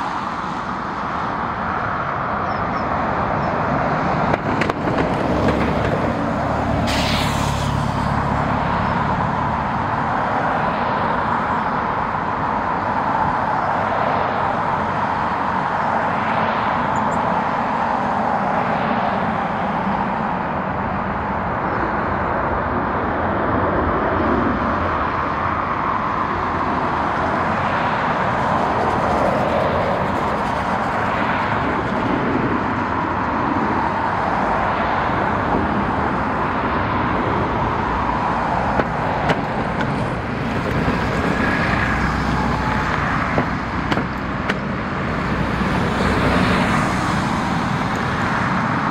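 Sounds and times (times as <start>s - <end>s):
jet engines rushing: 22.0s - 48.9s.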